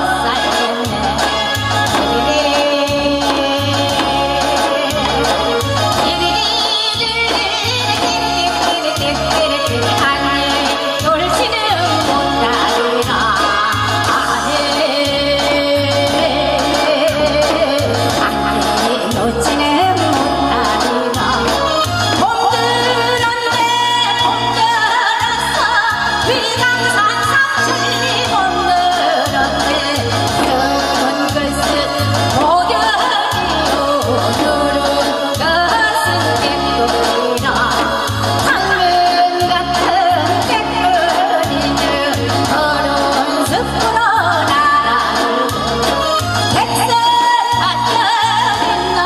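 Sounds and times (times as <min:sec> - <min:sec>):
amplified accompaniment with bass: 0:00.0 - 0:49.0
woman singing into a microphone: 0:00.0 - 0:49.0.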